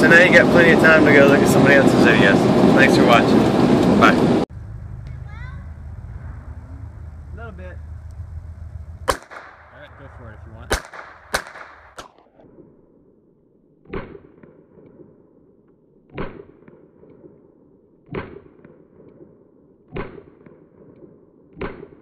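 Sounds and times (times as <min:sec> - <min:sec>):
pistol shots with echo: 0:09.1 - 0:10.0, 0:10.7 - 0:12.1.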